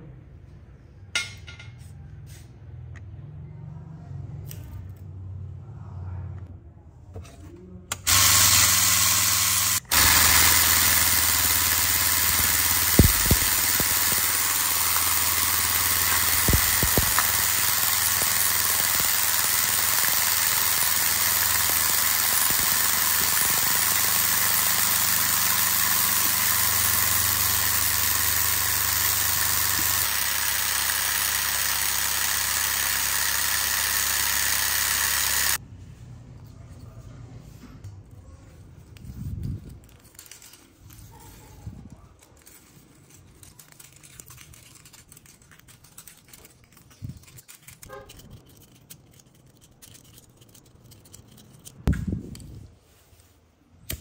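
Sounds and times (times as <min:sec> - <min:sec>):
motor hum: 0:07.9 - 0:35.6.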